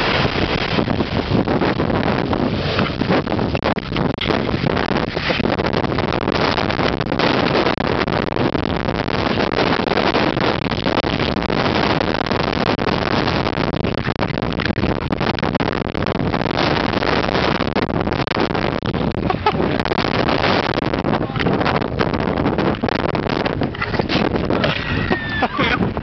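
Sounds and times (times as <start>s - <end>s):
jet engines roaring: 0.0s - 8.0s
wind buffeting microphone: 0.0s - 26.0s.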